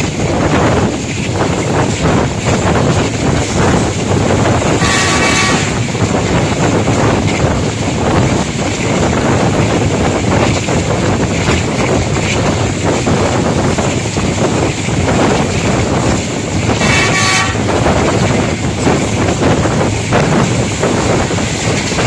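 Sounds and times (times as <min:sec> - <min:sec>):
train rushing at speed: 0:00.0 - 0:22.0
wind buffeting microphone: 0:00.0 - 0:22.0
train horn: 0:04.8 - 0:05.9, 0:16.8 - 0:17.9.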